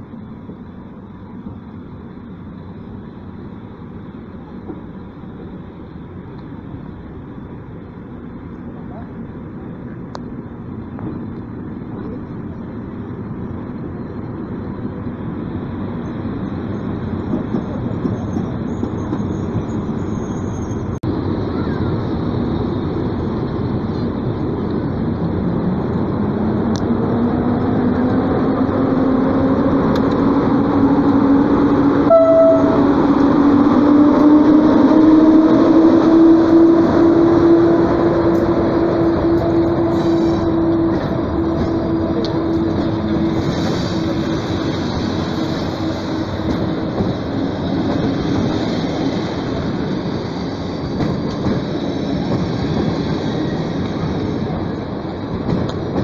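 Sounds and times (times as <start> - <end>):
train wheels rumbling on rail: 0.0 - 56.0
high train toot: 31.9 - 44.2.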